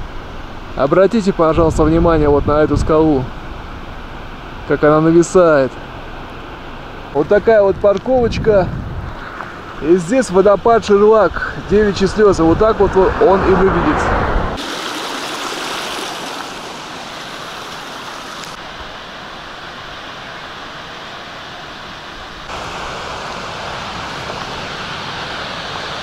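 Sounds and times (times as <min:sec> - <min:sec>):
waterfall rushing: 0:14.6 - 0:26.0.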